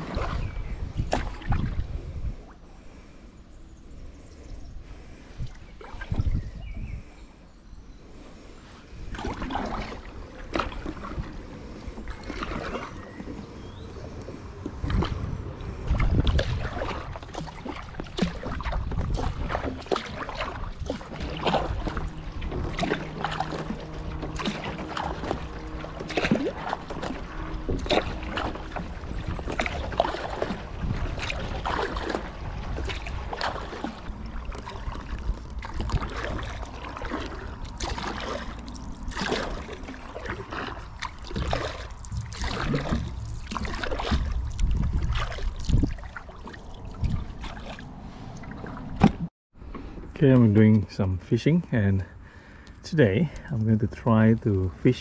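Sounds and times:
paddle splashing in water: 0.0s - 2.6s, 4.9s - 6.8s, 8.6s - 49.9s
water dripping and trickling: 16.0s - 47.8s.

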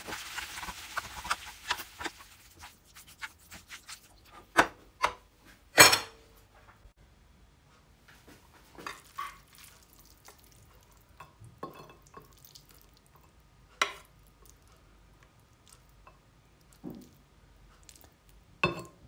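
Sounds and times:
soft wet pasta sounds: 0.0s - 4.6s, 8.1s - 19.0s.

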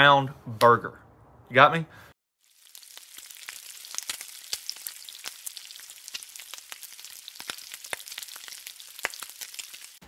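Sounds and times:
fat crackling and popping: 2.4s - 10.0s
food sizzling on griddle: 2.4s - 10.0s.

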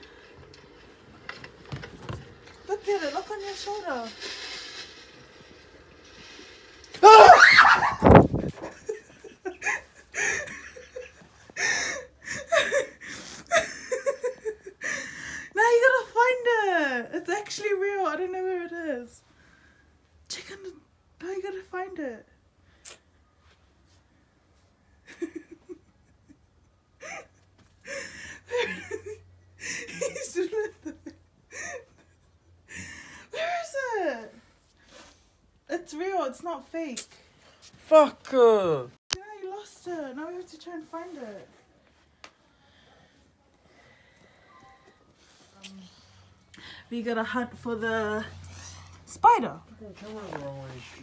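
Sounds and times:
person screaming: 7.0s - 8.1s
bursts of laughter: 7.1s - 8.2s
person stifled laughter with gasps: 25.1s - 30.2s.

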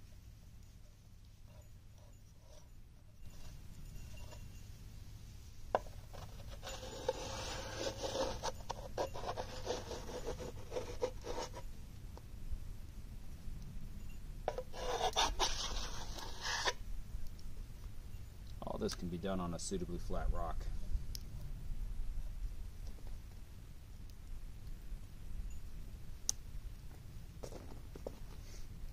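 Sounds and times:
wet clay scraping in metal pan: 5.8s - 11.6s, 14.5s - 16.8s.

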